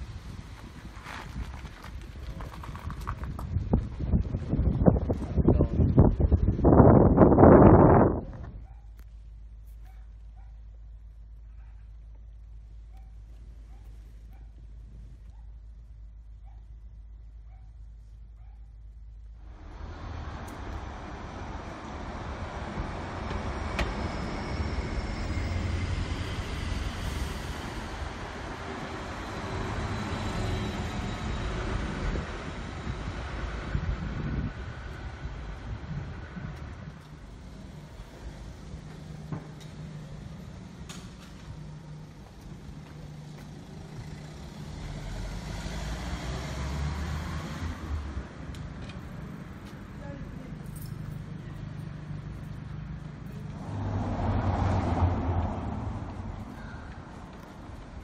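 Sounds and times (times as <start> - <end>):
traffic hum: 0.0 - 58.0
bus driving past: 19.0 - 58.0.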